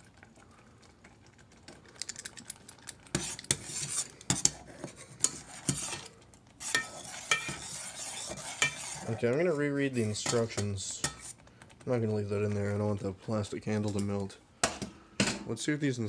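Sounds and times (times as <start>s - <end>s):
utensil scraping a metal pot: 3.1s - 11.4s.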